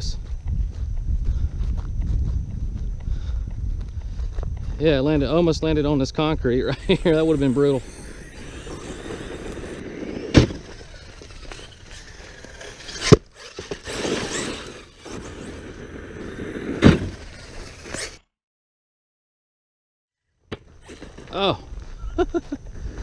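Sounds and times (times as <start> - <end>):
rc truck driving over gravel: 6.0 - 18.2, 20.5 - 22.0
electric motor whining: 6.6 - 18.2
sharp impacts of truck landing: 10.0 - 15.3.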